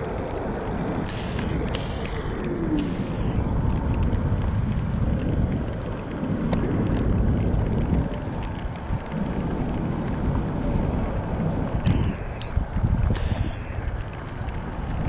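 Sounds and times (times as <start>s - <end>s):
sharp ticks: 0.0s - 15.0s
wind buffeting microphone: 0.0s - 15.0s
tyres hissing on wet road: 8.4s - 15.0s.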